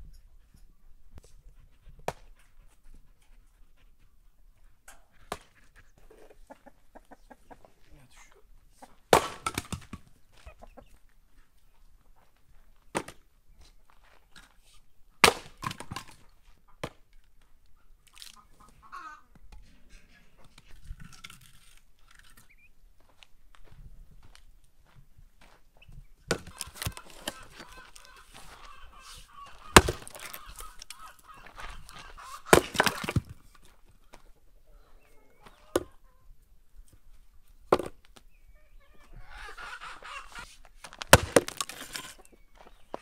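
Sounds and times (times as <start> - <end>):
hen clucking: 5.1 - 9.0, 10.3 - 11.0, 17.8 - 20.5, 26.4 - 33.1, 34.7 - 36.4, 38.5 - 40.6
wooden logs knocking: 26.3 - 27.7, 29.6 - 30.6, 32.5 - 33.4, 41.0 - 42.1
logs clattering: 26.3 - 28.8, 29.5 - 31.3, 32.0 - 33.8, 40.8 - 42.3.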